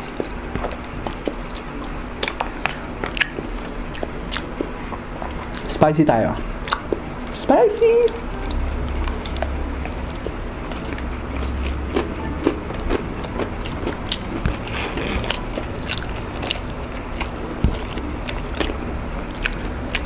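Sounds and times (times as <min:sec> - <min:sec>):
crunching fried chicken: 0:08.0 - 0:20.0.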